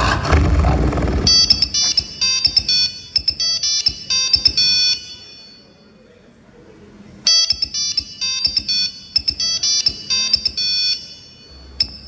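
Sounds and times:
phone ringtone melody: 0:01.3 - 0:06.0, 0:07.3 - 0:12.0.

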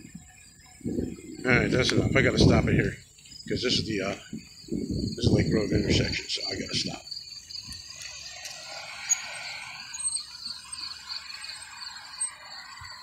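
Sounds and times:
bike freewheel ticking: 0:07.2 - 0:13.0.

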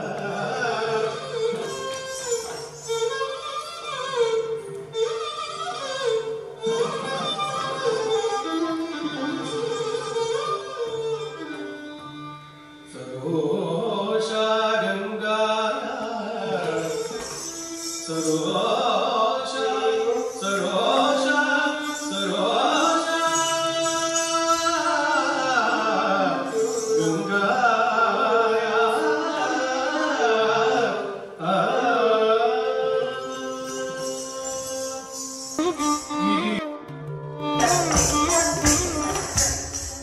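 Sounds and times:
sustained instrumental accompaniment: 0:33.3 - 0:40.0.

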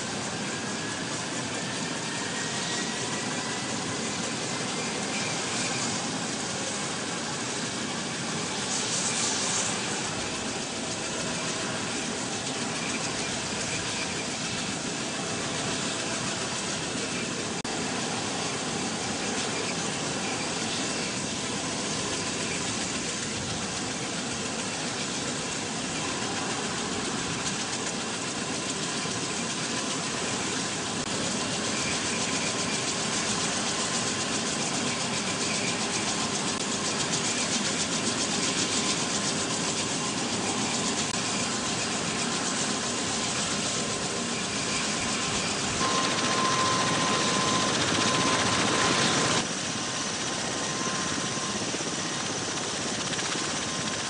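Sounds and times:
aircraft engines and rotors rushing: 0:00.0 - 0:54.0
thin whistle-like tone: 0:44.3 - 0:49.4.

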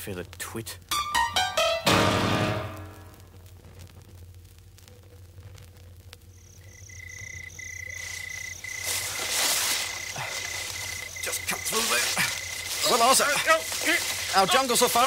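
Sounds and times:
record crackle and hum: 0:00.0 - 0:15.0
hissing jungle ambience: 0:04.7 - 0:15.0
insects chirping: 0:06.3 - 0:15.0.

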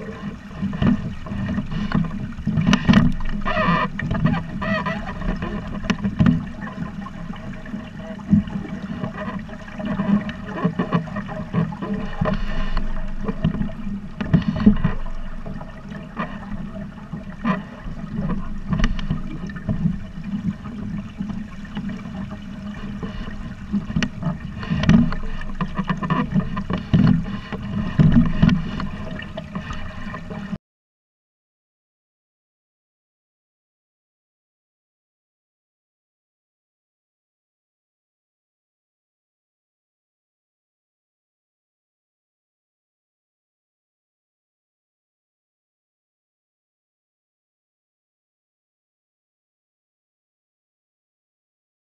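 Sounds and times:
water slapping against boat hull: 0:00.0 - 0:30.6.

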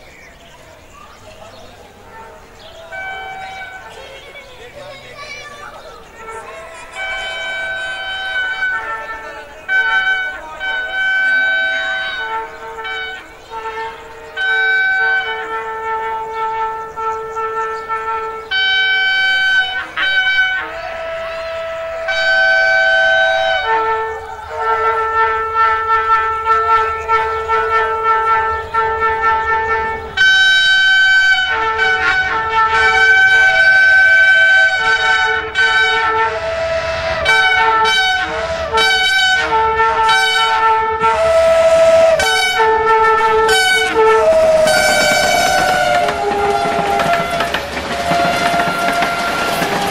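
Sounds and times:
locomotive horn chords: 0:00.8 - 0:49.9.

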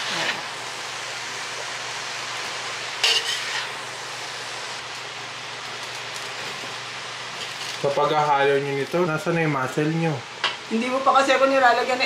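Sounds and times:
utensil stirring vegetables in pan: 0:00.0 - 0:08.1
steady hiss: 0:00.0 - 0:12.0.

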